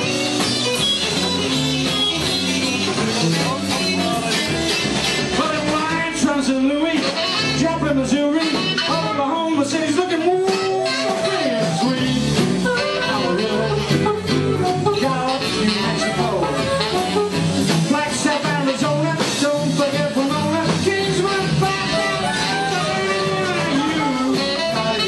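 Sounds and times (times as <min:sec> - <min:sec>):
harmonica solo: 0:00.0 - 0:06.0, 0:07.0 - 0:17.9, 0:20.5 - 0:25.0
live rock band playing: 0:00.0 - 0:25.0.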